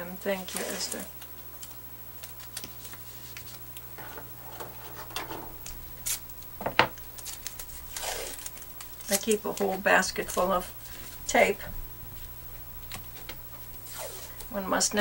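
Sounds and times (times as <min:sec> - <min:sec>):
tape pulled off roll and torn: 0:07.2 - 0:09.3.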